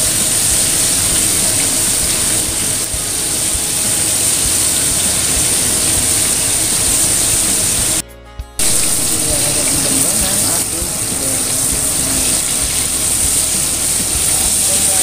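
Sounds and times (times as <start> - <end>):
chicken deep-frying in oil: 0.0 - 8.0, 8.6 - 15.0
small oil crackles: 0.0 - 8.0, 8.6 - 15.0.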